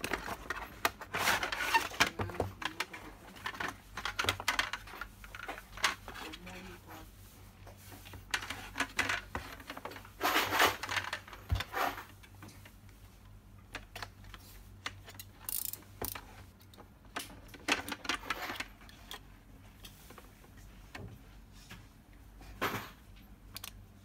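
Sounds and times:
plastic scraping: 0.0 - 6.8.

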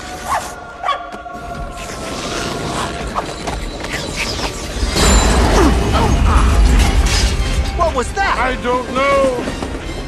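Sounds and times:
tense orchestral music: 0.0 - 10.0
train machinery clatter and rumble: 5.0 - 10.0.

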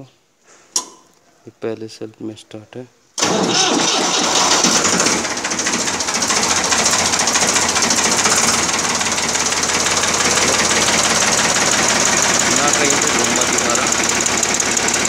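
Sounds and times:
diesel tractor engine clattering: 3.2 - 15.0.

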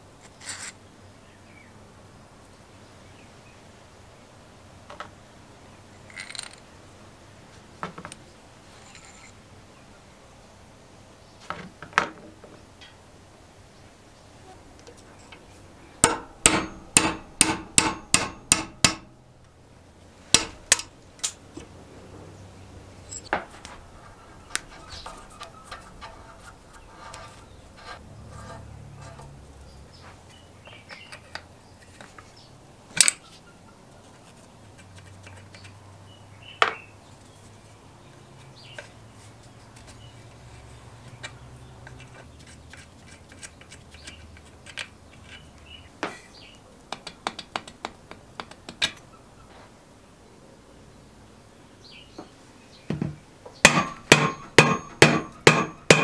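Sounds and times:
spanner and metal parts clinking: 6.0 - 6.6, 8.8 - 9.4, 23.0 - 23.3
hammer striking metal punch: 16.0 - 19.2, 20.3 - 20.9, 53.6 - 56.0.

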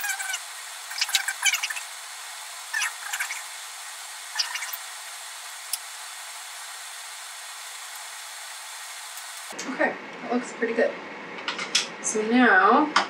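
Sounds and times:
steady background hiss: 0.0 - 9.5.

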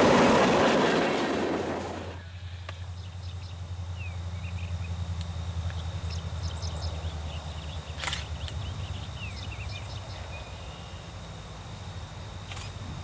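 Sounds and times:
distant diesel locomotives rumbling: 0.0 - 12.1
small birds chirping: 2.3 - 11.2
sharp click: 8.0 - 8.6.

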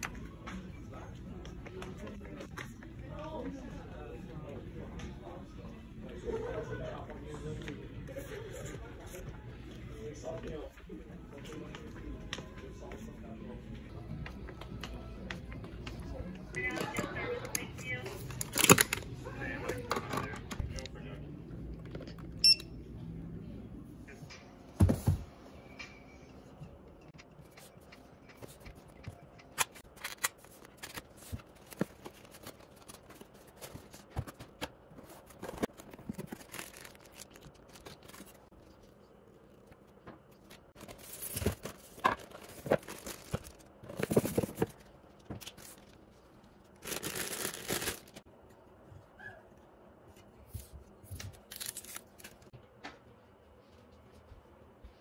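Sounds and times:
packaging rustling and tearing: 18.3 - 19.0, 35.2 - 38.5, 40.8 - 45.9, 46.8 - 48.2, 51.2 - 52.5.

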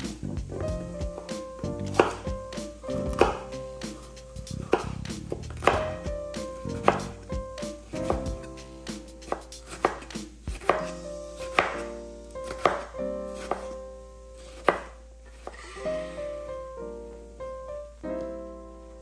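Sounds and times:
knife chopping on cutting board: 0.6 - 13.8, 14.4 - 15.6.

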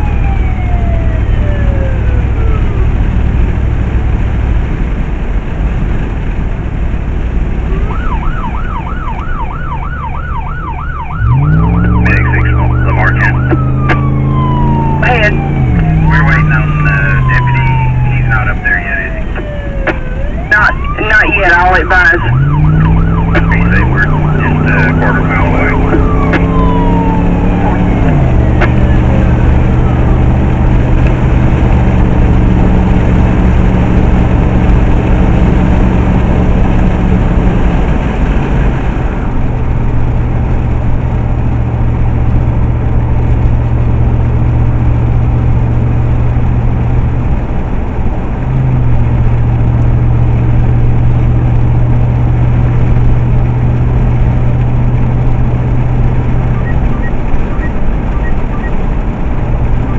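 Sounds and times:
siren winding down: 0.0 - 3.1, 7.7 - 31.1, 56.3 - 58.8
vehicle engine and road drone: 0.0 - 59.9.

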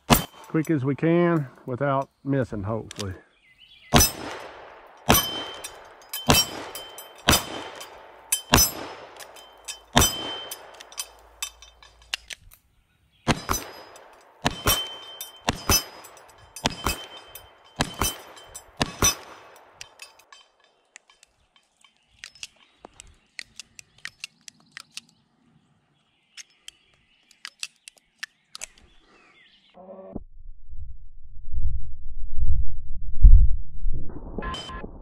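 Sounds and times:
revolver hammer cocking: 0.0 - 0.6, 4.0 - 12.5, 13.3 - 21.3
steel plate target ringing: 0.0 - 0.7, 4.0 - 4.4, 5.0 - 12.1, 13.3 - 20.7.

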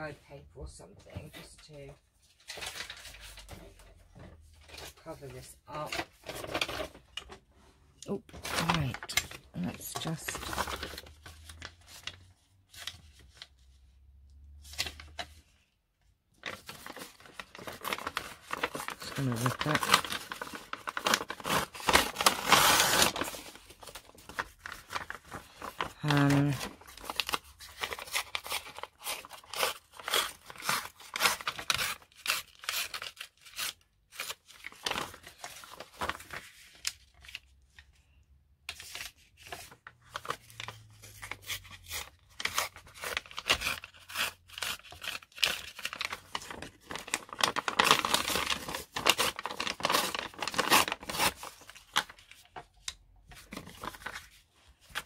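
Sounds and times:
paper being cut and torn: 16.9 - 23.5.

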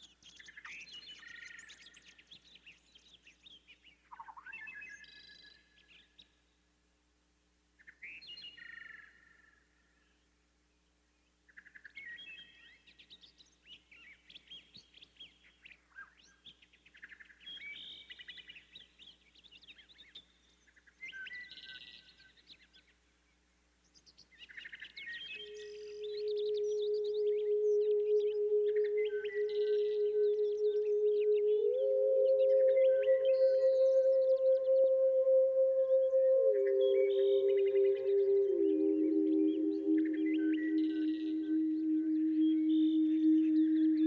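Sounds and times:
songbirds chirping and twittering: 0.0 - 6.8, 7.8 - 44.0
steady low tone: 25.4 - 44.0.

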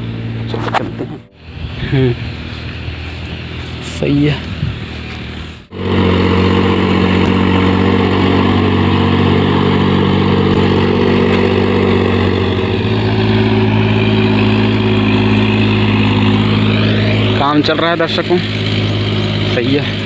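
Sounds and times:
tractor engine running: 0.0 - 20.0.

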